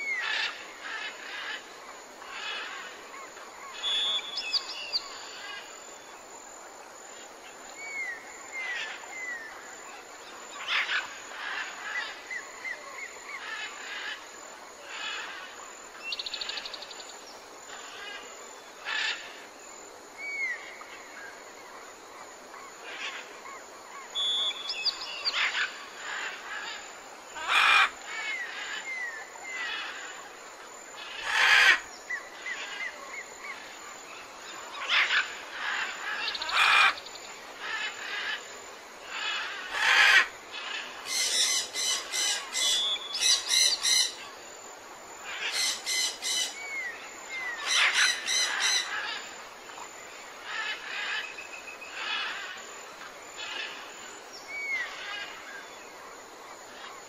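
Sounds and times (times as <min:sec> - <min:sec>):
steady hiss: 0:00.0 - 0:57.0
harsh bird calls: 0:45.3 - 0:49.2.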